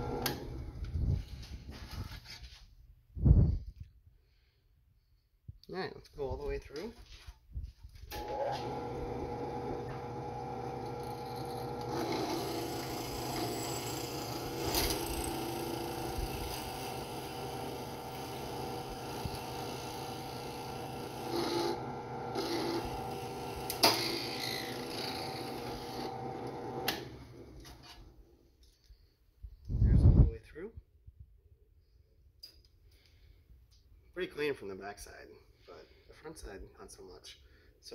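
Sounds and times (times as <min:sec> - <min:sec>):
drill press running: 0:00.0 - 0:00.8, 0:08.1 - 0:27.9
drill bit grinding through phone: 0:08.3 - 0:27.1.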